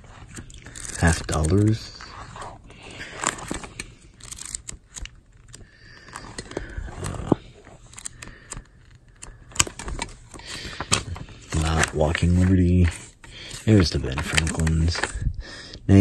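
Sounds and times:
paper pages rustling: 0:00.0 - 0:15.2
pages flicking ticks: 0:00.4 - 0:01.7.

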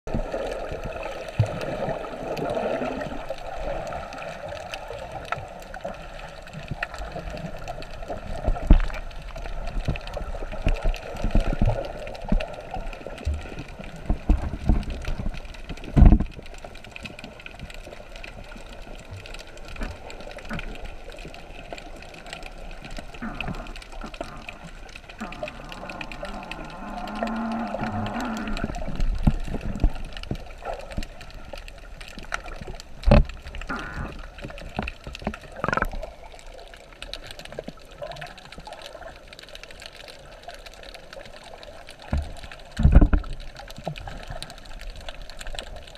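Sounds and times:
muffled underwater water rush: 0:00.0 - 0:45.9
dull underwater thumps: 0:15.9 - 0:16.3, 0:42.2 - 0:43.2.

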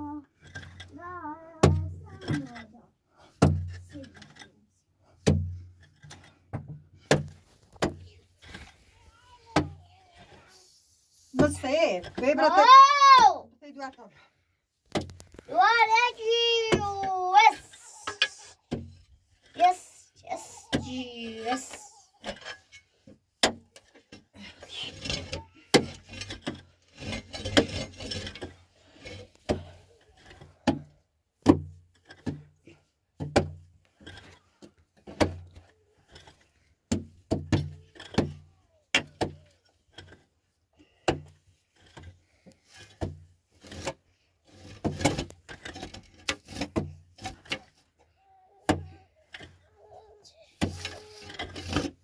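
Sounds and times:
hard objects knocking and clattering: 0:05.2 - 0:08.8, 0:21.5 - 0:47.9.

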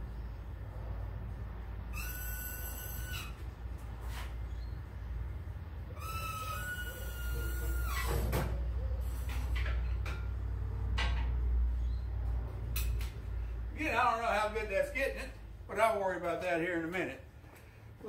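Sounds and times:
steady low hum: 0:00.0 - 0:06.0
metal squeaking: 0:01.9 - 0:03.5, 0:05.9 - 0:08.4.

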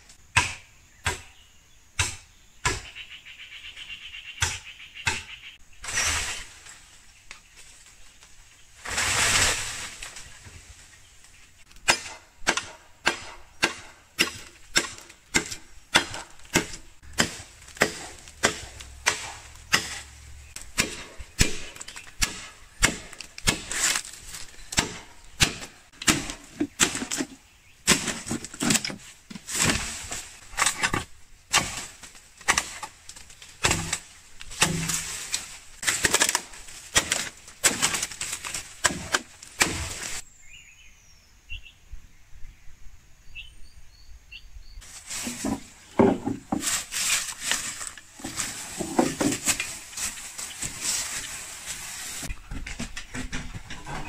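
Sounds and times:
machete chopping bamboo: 0:00.3 - 0:01.4, 0:02.0 - 0:03.0, 0:04.4 - 0:05.4, 0:11.7 - 0:40.2, 0:45.2 - 0:51.2
rush of leaves and stalks: 0:05.4 - 0:40.3, 0:44.8 - 0:53.0.

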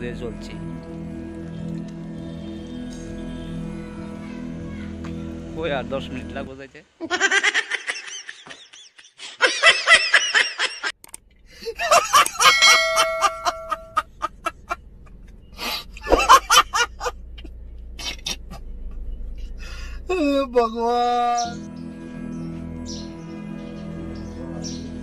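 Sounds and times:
man laughing hysterically: 0:07.0 - 0:10.9, 0:11.6 - 0:14.8, 0:15.6 - 0:17.2.

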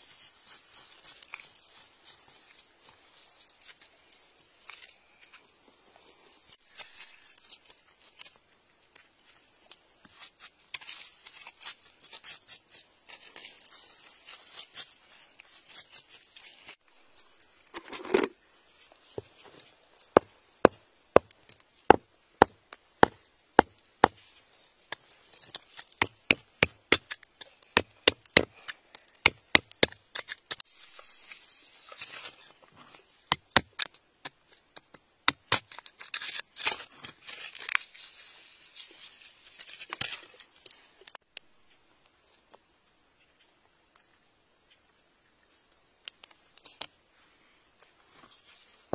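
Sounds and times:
scraping in gravelly soil: 0:00.0 - 0:17.6, 0:36.2 - 0:41.0
hammer striking chisel in rock: 0:21.9 - 0:24.2.

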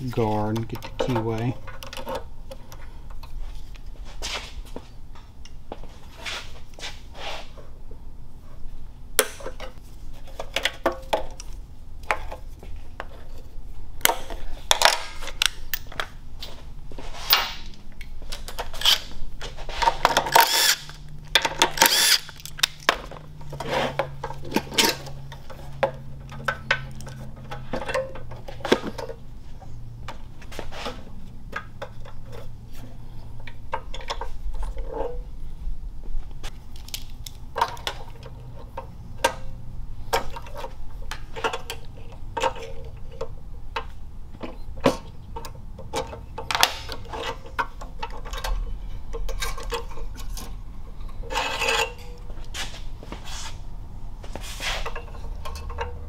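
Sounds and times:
metal parts clicking and knocking: 0:19.8 - 0:29.2, 0:36.7 - 0:52.3, 0:54.8 - 0:56.0
cordless impact wrench running: 0:20.3 - 0:21.0, 0:21.7 - 0:22.4.

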